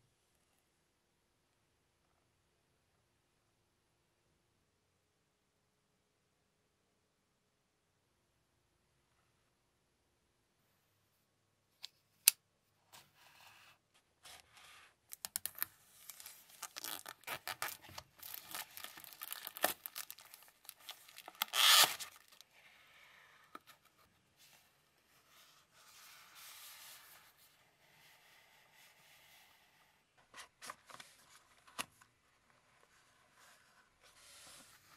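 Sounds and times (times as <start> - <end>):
plastic shrink wrap tearing: 15.1 - 22.4.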